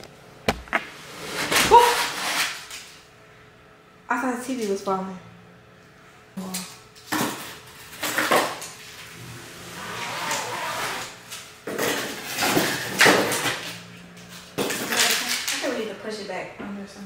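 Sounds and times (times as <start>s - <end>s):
scraping: 9.0s - 12.7s
objects knocking and clattering: 11.6s - 15.7s.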